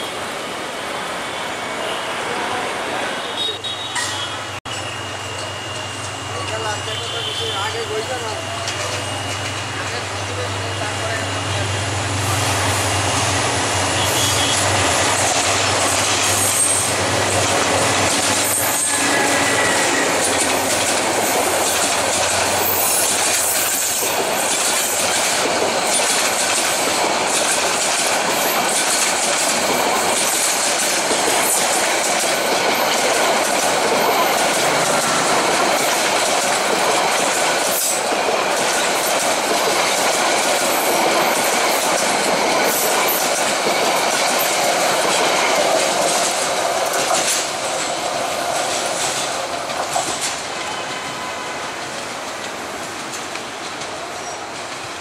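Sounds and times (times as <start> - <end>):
train wheels clattering on rails: 3.9 - 11.6, 12.2 - 55.0.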